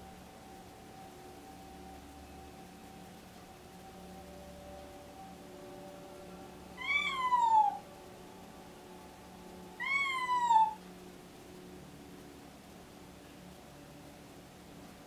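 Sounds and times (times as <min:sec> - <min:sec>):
cat meowing: 0:06.8 - 0:07.8, 0:09.8 - 0:10.8.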